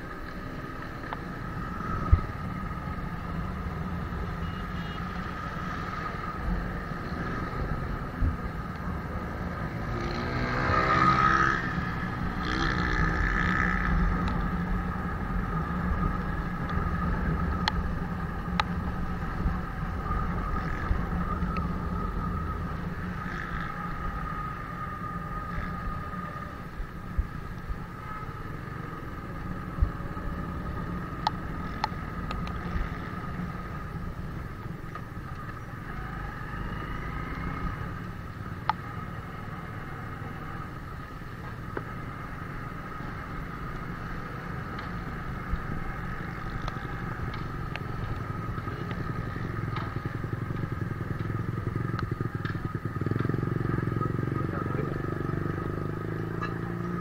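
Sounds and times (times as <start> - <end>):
motorcycle engine running: 44.1 - 57.0.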